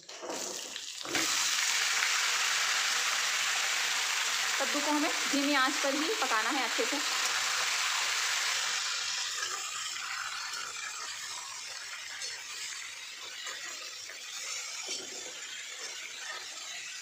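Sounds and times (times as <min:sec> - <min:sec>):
food sizzling in hot oil: 0:00.0 - 0:17.0
metal spatula scraping a pan: 0:09.2 - 0:17.0.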